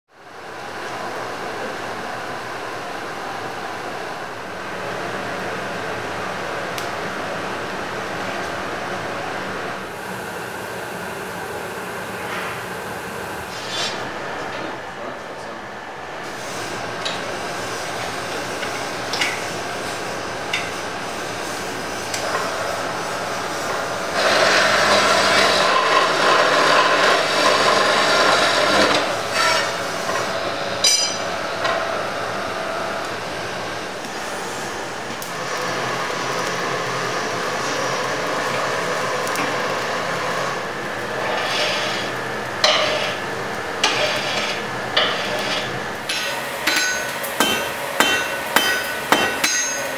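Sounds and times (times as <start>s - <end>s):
metal-cutting saw cutting steel: 23.7s - 31.8s, 35.4s - 49.9s
sharp metallic clanks: 30.8s - 31.3s, 46.1s - 49.9s.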